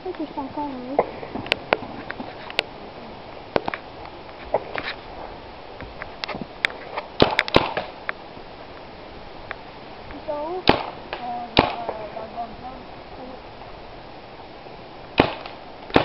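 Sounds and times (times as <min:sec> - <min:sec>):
paintball marker shots: 0:07.2 - 0:08.0, 0:10.7 - 0:12.0, 0:15.2 - 0:16.0.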